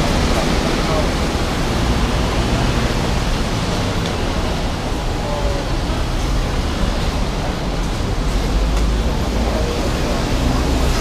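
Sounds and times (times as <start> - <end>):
city traffic roar: 0.0 - 11.0.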